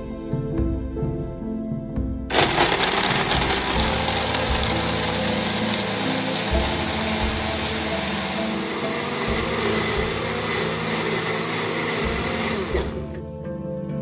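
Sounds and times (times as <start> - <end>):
blender motor running: 2.3 - 13.2.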